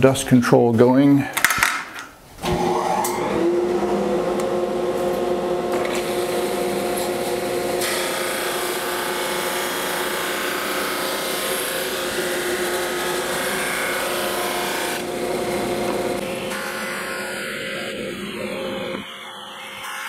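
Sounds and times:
drum sander humming: 0:02.6 - 0:20.0
wood sanding hiss: 0:06.3 - 0:19.0.

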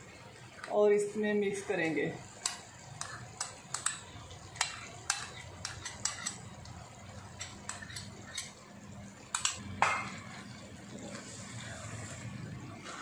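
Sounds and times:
utensils knocking against a wok: 0:02.3 - 0:06.7, 0:09.3 - 0:10.4.

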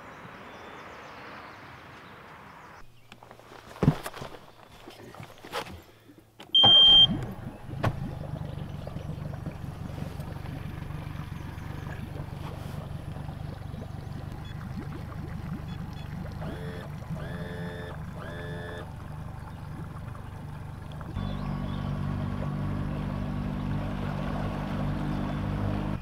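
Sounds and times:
outboard motor starting and idling: 0:05.8 - 0:26.0
short high beep: 0:06.6 - 0:07.2.

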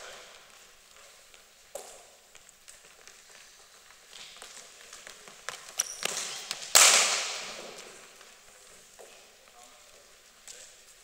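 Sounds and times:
cricket bat striking ball: 0:06.7 - 0:07.6.

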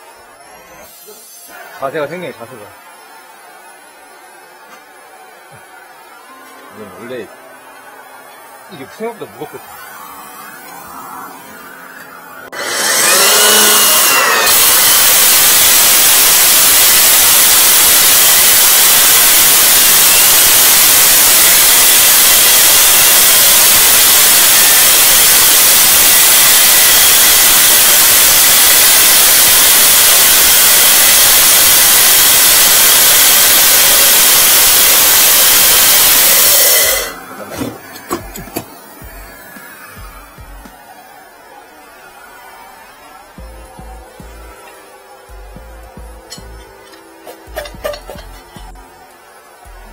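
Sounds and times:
electric core drill boring: 0:00.0 - 0:05.6, 0:12.0 - 0:40.8, 0:43.3 - 0:48.9
vacuum running: 0:00.0 - 0:49.9.

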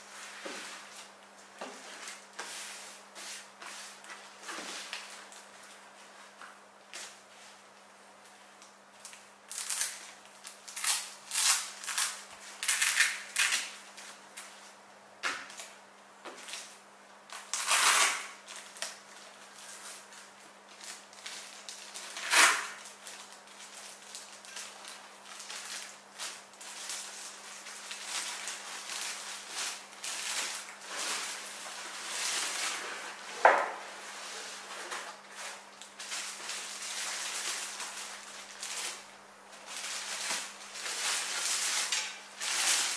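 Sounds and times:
plastic wrap crinkling: 0:08.6 - 0:14.7, 0:16.4 - 0:42.9.

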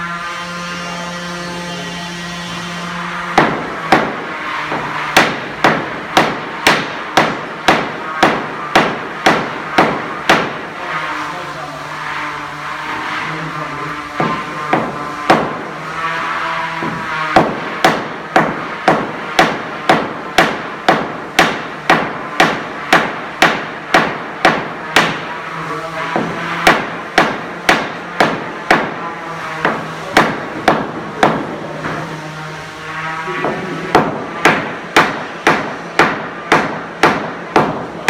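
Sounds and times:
wooden mallet striking wood: 0:03.3 - 0:10.7, 0:14.2 - 0:15.7, 0:16.8 - 0:25.4, 0:26.1 - 0:29.0, 0:29.6 - 0:32.0, 0:33.4 - 0:38.0.

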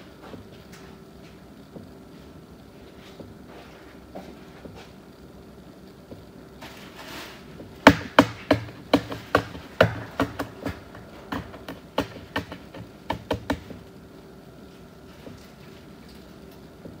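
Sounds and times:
sharp taps: 0:07.9 - 0:13.8.

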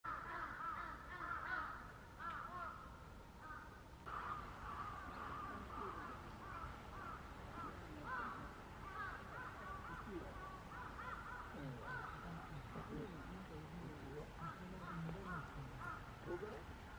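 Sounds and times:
heron chicks chattering: 0:04.1 - 0:16.8.

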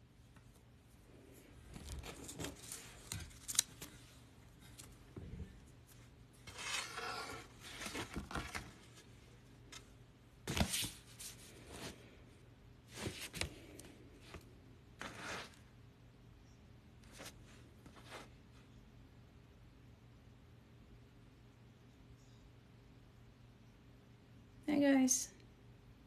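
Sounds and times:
rubbing and rustling: 0:15.0 - 0:15.6.

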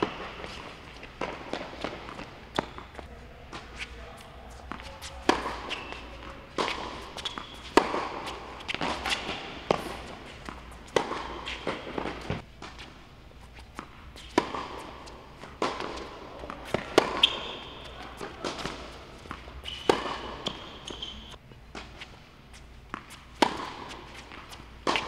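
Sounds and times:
ball bouncing: 0:00.0 - 0:03.1
racket striking tennis ball: 0:00.0 - 0:13.0, 0:13.6 - 0:22.1, 0:22.9 - 0:25.0
sneaker squeaks: 0:00.0 - 0:14.7, 0:15.7 - 0:25.0
footsteps: 0:00.0 - 0:25.0.

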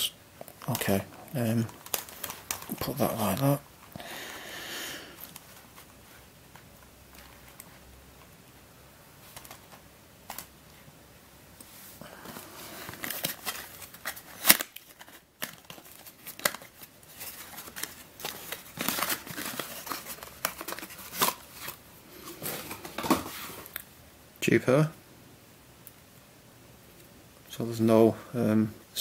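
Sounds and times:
packaging crinkling and rustling: 0:00.4 - 0:04.0, 0:09.2 - 0:10.5, 0:12.2 - 0:23.8.

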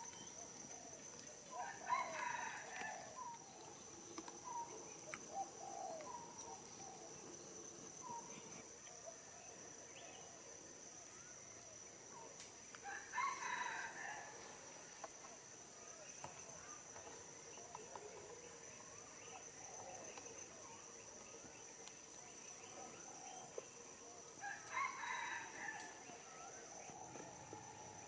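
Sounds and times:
distant rooster crowing: 0:01.5 - 0:03.3, 0:12.8 - 0:14.6, 0:24.4 - 0:28.0.

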